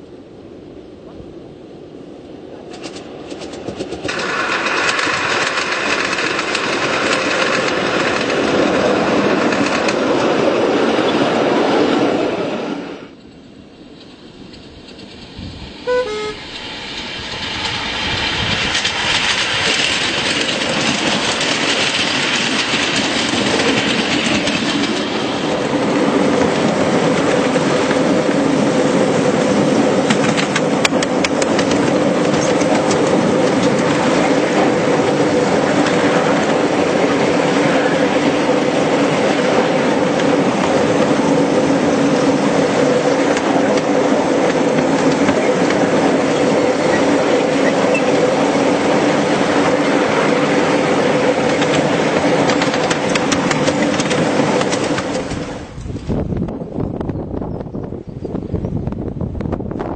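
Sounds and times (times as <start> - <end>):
miniature train wheels clattering on rails: 2.7 - 8.5, 18.4 - 25.1, 30.0 - 34.2, 51.4 - 55.5
two-note train toot: 15.8 - 16.7.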